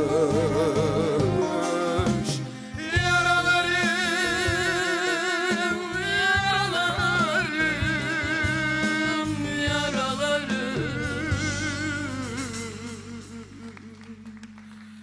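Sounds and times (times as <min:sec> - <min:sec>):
lute and band accompaniment: 0:00.0 - 0:14.8.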